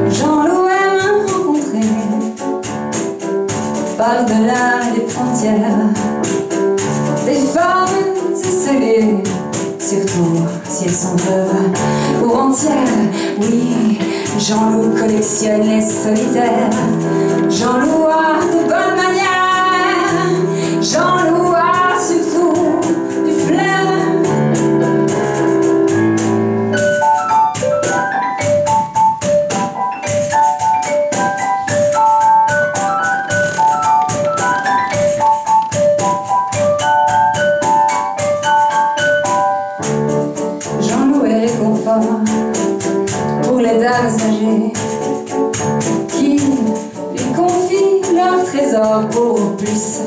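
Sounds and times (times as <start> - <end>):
woman singing: 0.0 - 2.4, 4.0 - 6.4, 7.2 - 24.7, 40.8 - 42.6, 43.4 - 45.0, 46.1 - 50.0
stage piano: 0.0 - 50.0.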